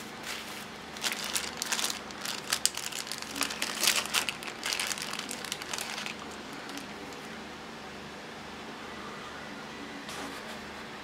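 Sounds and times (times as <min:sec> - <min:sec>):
plastic packaging crinkling: 0:00.9 - 0:07.3.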